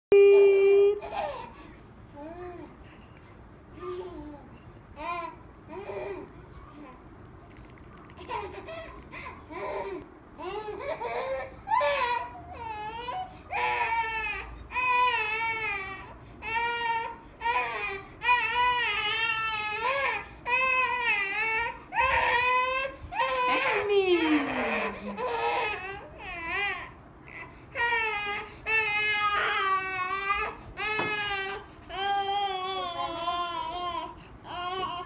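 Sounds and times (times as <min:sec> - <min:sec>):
baby crying: 0:09.5 - 0:35.0.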